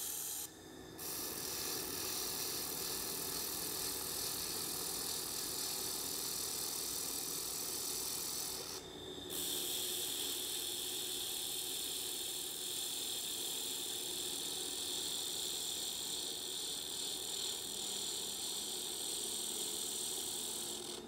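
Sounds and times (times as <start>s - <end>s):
laser welder hissing: 0.0s - 21.0s.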